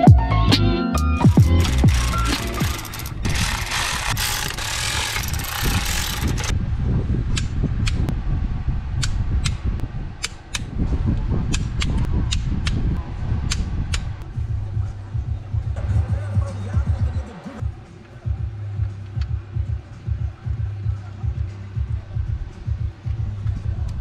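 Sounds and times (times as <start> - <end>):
socket ratchet clicking: 1.3 - 6.5.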